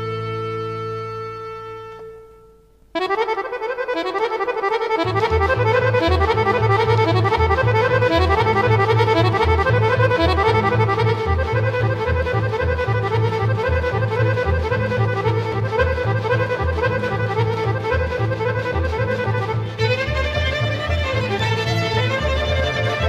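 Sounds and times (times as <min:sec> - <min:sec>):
accordion music: 0:00.0 - 0:23.0
pulsing bass line: 0:05.0 - 0:23.0.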